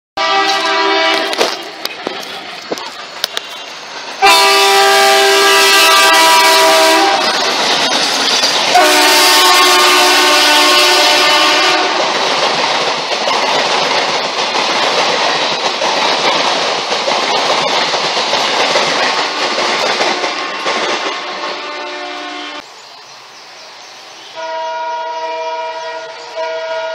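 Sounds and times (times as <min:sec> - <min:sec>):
train horn blasts: 0:00.2 - 0:01.7, 0:04.2 - 0:07.4, 0:08.7 - 0:12.1, 0:19.2 - 0:22.6, 0:24.4 - 0:26.9
train wheels clacking on rails: 0:00.2 - 0:22.1.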